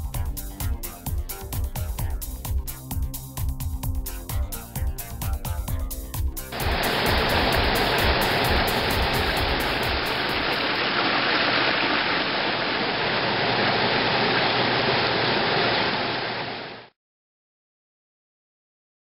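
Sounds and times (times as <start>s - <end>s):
waterfall rushing over rocks: 6.5s - 16.9s.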